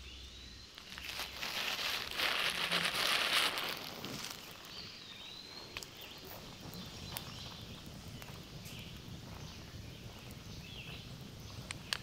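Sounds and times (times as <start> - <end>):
campfire crackling: 0.0 - 12.0
fire popping: 0.6 - 12.0.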